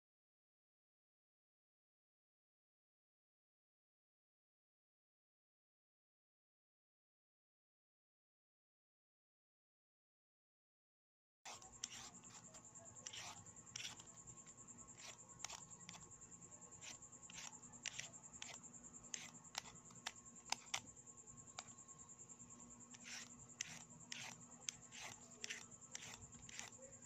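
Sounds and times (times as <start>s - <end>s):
cucumber peeling scraping clicks: 11.5s - 14.1s, 14.9s - 16.0s, 16.8s - 20.9s, 22.9s - 26.8s
faint high-pitched whine: 11.5s - 27.0s.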